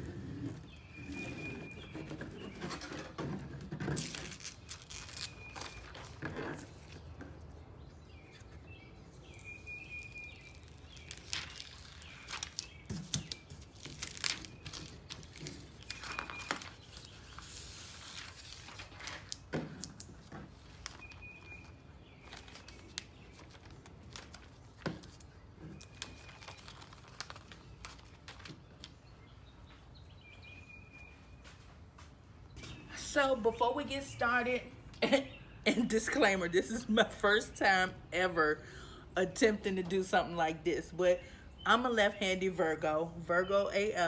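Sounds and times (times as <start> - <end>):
tape crinkling and peeling: 0.0 - 7.6, 8.2 - 29.2.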